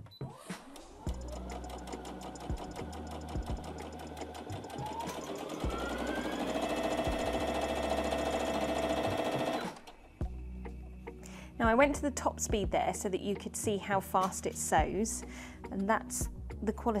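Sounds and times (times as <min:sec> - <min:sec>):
sewing machine stitching: 0:00.6 - 0:10.0.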